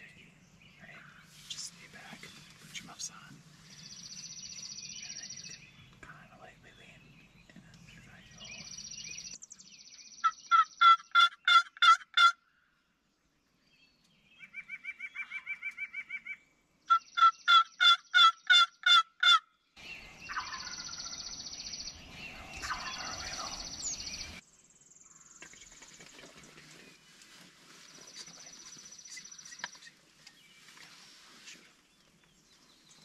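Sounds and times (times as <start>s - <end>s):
distant turkey gobble: 10.2s - 12.4s, 20.3s - 21.2s, 22.3s - 23.9s
turkey yelps: 10.2s - 12.4s, 14.5s - 19.4s, 20.3s - 21.0s, 22.5s - 23.6s
rustling: 25.5s - 33.0s.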